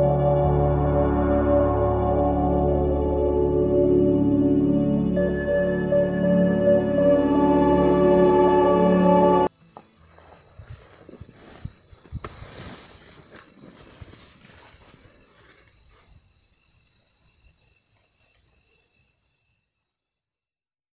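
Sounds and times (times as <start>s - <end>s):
cricket chirping: 9.5s - 20.7s.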